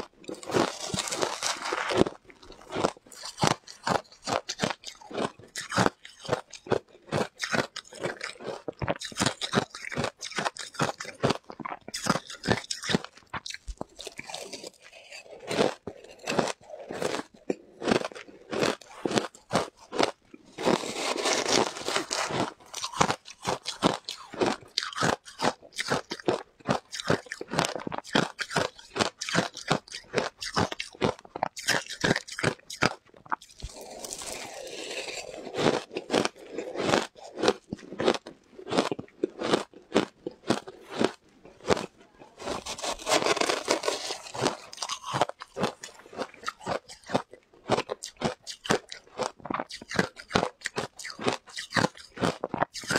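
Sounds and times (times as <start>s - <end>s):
shaved ice crunching: 0.4s - 2.2s, 20.6s - 23.2s, 33.6s - 36.3s, 42.4s - 46.6s.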